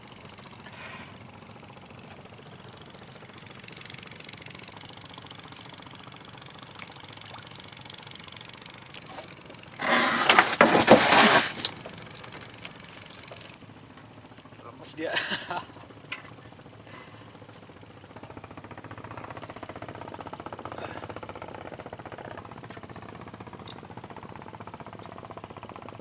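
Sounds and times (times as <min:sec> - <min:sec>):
water splashing and thrashing: 0:02.1 - 0:07.9, 0:08.7 - 0:13.7.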